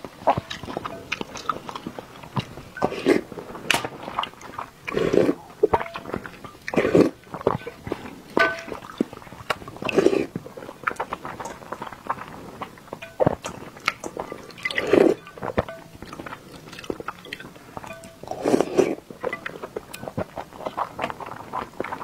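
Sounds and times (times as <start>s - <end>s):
wet chewing and mouth clicks: 0.0s - 22.0s
slurping broth from spoon: 1.8s - 8.1s, 9.5s - 12.7s, 14.2s - 15.6s, 17.8s - 19.6s.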